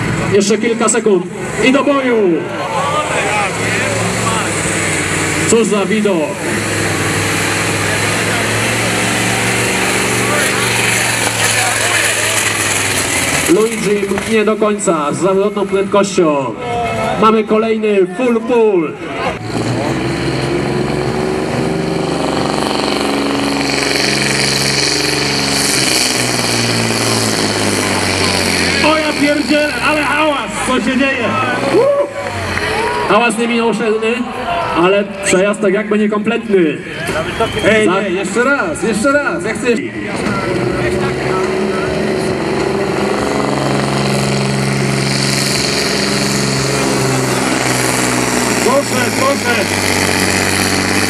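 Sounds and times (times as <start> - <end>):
diesel engine running hard: 0.0 - 51.0
engine hiss: 21.1 - 33.0, 40.5 - 51.0.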